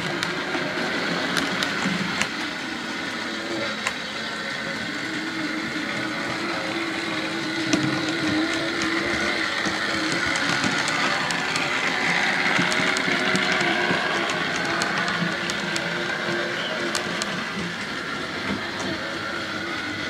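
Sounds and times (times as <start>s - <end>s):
model train motor whining: 0.0s - 20.0s
wheels clicking over rail joints: 5.3s - 20.0s.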